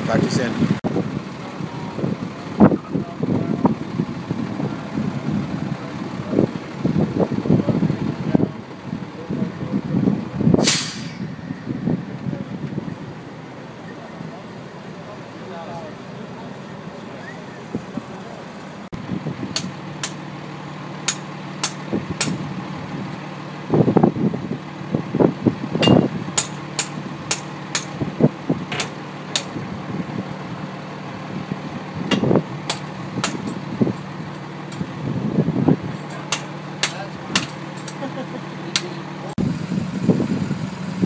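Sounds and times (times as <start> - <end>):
rig engines running: 0.0 - 41.0
metallic clanks and knocks: 25.8 - 28.0, 28.7 - 29.6, 32.1 - 33.6, 36.1 - 38.0.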